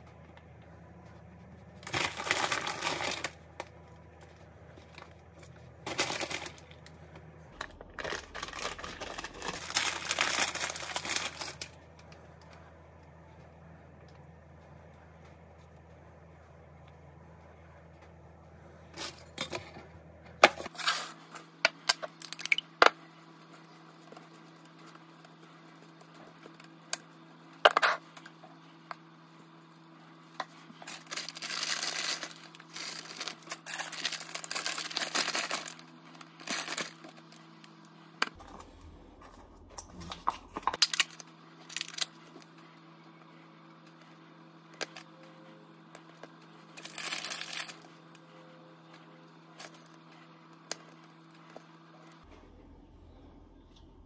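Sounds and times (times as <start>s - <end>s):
steady low hum: 0.0s - 54.0s
plastic bag rustling: 1.8s - 3.4s, 4.9s - 6.9s, 7.6s - 11.8s, 30.8s - 37.4s, 46.8s - 47.9s.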